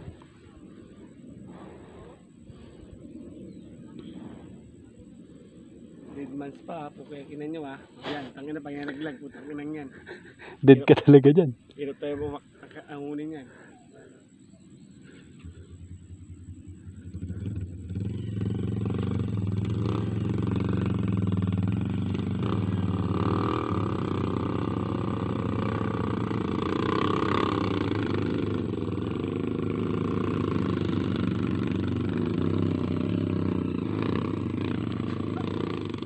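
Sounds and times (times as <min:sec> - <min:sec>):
motorcycle engine running: 0:14.4 - 0:36.0.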